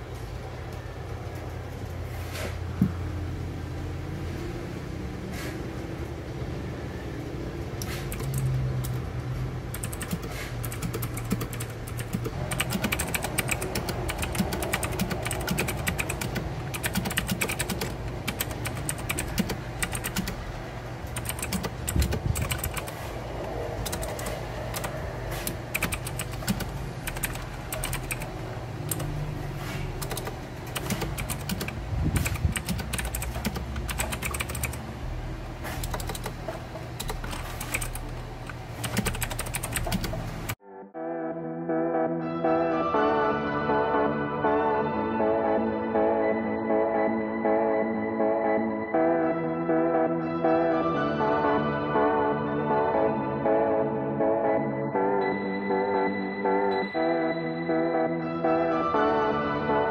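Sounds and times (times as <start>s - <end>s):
mechanical keyboard typing: 8.1s - 9.0s, 9.7s - 20.4s, 21.1s - 23.1s, 23.8s - 29.2s, 29.9s - 34.8s, 35.7s - 40.6s.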